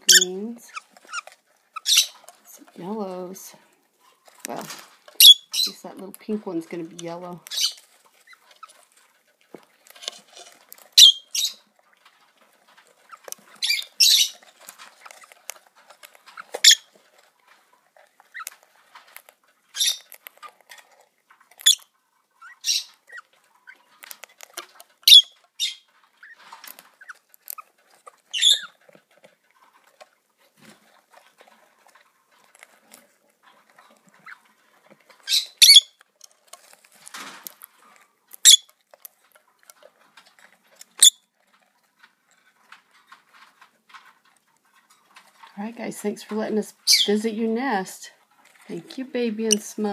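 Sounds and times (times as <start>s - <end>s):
bird chicks squeaking: 0.0s - 2.6s, 4.5s - 5.9s, 7.0s - 8.8s, 10.9s - 11.7s, 13.0s - 14.6s, 16.3s - 16.9s, 19.7s - 20.6s, 21.6s - 23.9s, 25.0s - 28.8s, 35.2s - 36.0s, 38.3s - 38.7s, 46.8s - 47.3s.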